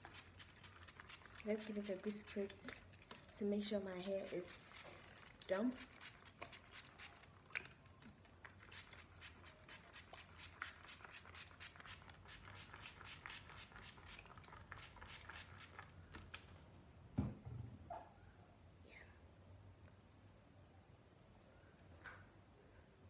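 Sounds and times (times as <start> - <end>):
spray bottle spritzing: 0.0 - 2.7, 4.0 - 7.3, 8.6 - 15.9
soft thump: 17.2 - 17.8.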